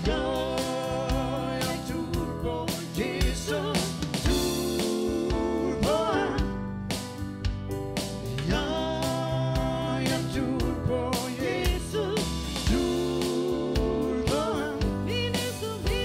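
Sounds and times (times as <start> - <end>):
person singing: 0.0 - 6.6, 8.4 - 16.0
instruments with drum beat: 0.0 - 16.0.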